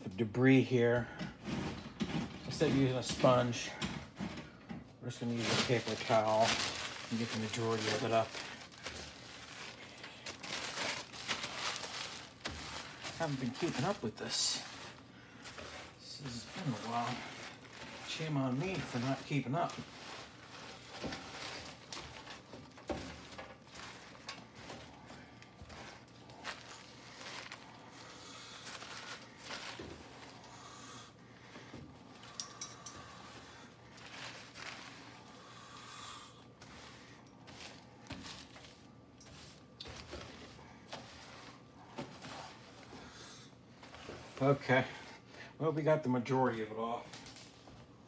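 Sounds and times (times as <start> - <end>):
paper towel scrubbing stovetop: 5.1 - 31.0, 33.1 - 35.5, 36.6 - 45.3.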